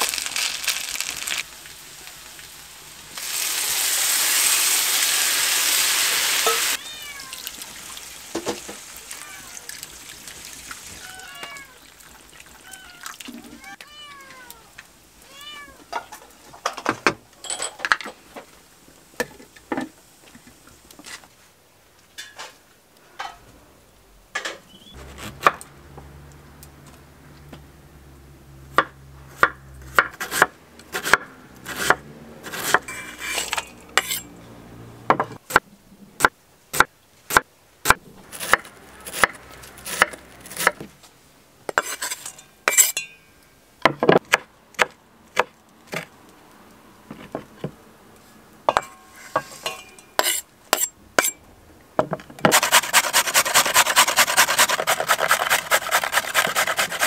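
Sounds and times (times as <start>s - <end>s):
cat meowing: 6.7s - 7.6s, 9.0s - 9.8s, 11.0s - 11.8s, 12.6s - 15.8s.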